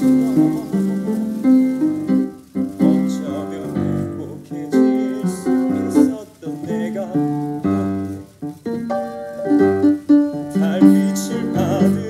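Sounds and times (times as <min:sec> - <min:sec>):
instrumental accompaniment: 0:00.0 - 0:12.0
man singing a slow ballad: 0:02.7 - 0:08.3, 0:10.4 - 0:12.0.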